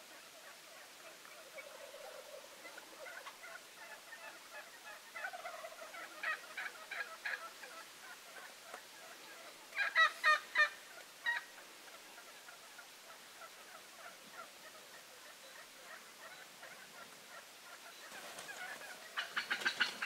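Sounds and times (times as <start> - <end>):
wild turkeys calling: 0.0 - 20.0.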